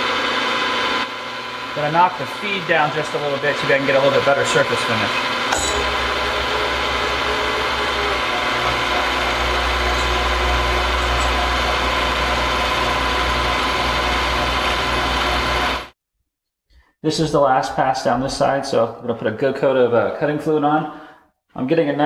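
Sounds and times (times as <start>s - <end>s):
milling machine humming: 0.0s - 15.9s.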